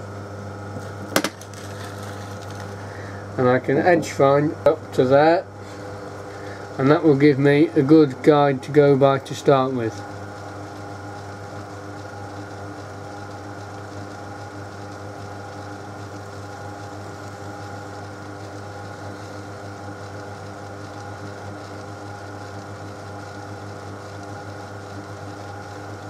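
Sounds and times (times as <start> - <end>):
lathe motor hum: 0.0 - 26.0.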